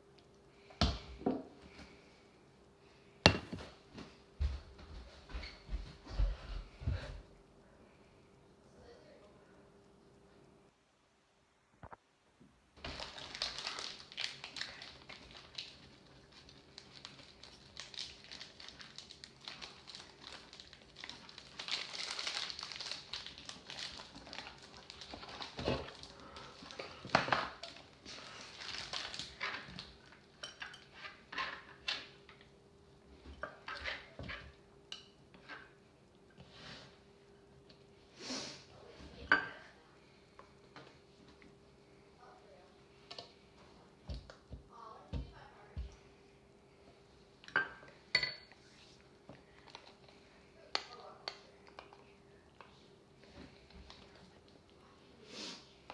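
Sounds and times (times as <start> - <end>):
faint steady hum: 0.0 - 55.9.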